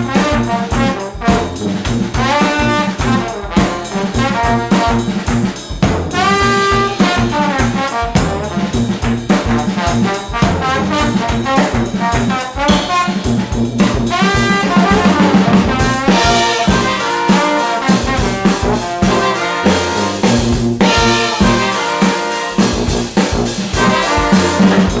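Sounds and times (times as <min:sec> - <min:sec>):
brass band playing: 0:00.0 - 0:25.0
hand claps: 0:05.2 - 0:05.6, 0:07.1 - 0:13.4.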